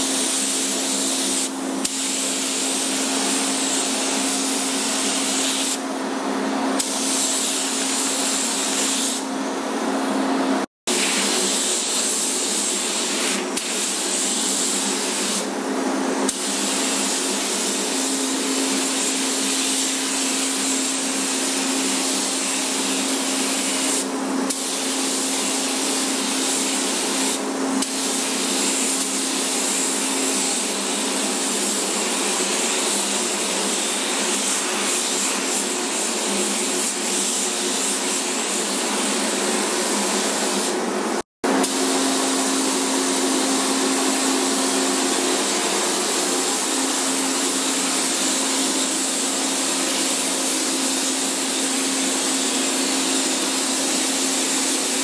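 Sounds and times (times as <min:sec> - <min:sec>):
paint spray gun hissing: 0:00.0 - 0:05.8, 0:06.8 - 0:09.3, 0:10.9 - 0:15.5, 0:16.3 - 0:40.8, 0:41.6 - 0:55.0.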